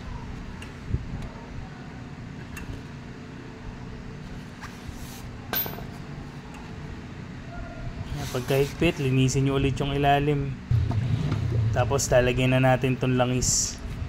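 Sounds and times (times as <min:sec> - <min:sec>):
low background rumble: 0:10.5 - 0:14.0.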